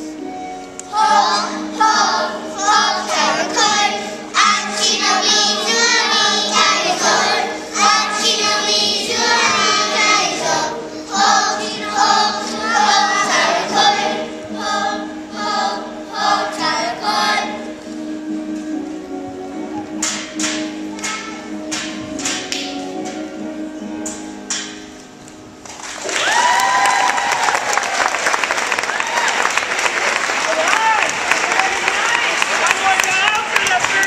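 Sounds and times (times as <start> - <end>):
children's choir singing: 0.0 - 24.8.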